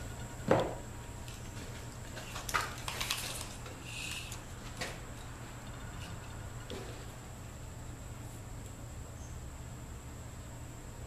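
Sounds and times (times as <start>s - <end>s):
tape measure clicking and rattling: 2.3s - 4.5s.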